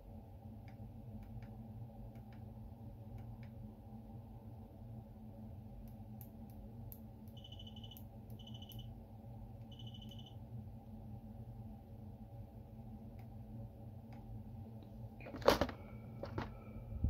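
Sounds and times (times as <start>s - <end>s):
frequency tester beeping trills: 7.3s - 8.9s, 9.7s - 10.4s.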